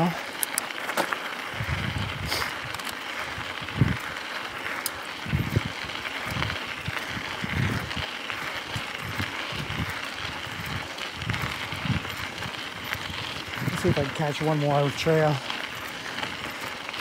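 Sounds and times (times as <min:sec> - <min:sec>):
bike tyres hissing on dirt: 0:00.0 - 0:17.0.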